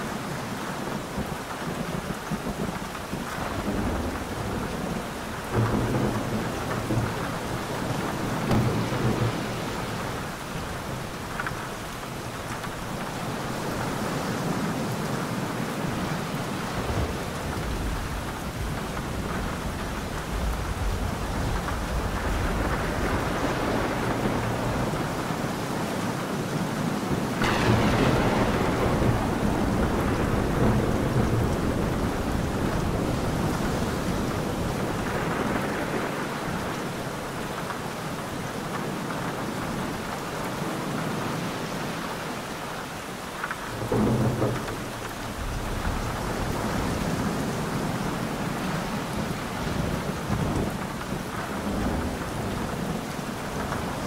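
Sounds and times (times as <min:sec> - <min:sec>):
steady rain: 0:00.0 - 0:54.0
thunder rolling: 0:02.5 - 0:11.8, 0:16.0 - 0:25.4, 0:27.4 - 0:37.5, 0:43.7 - 0:54.0.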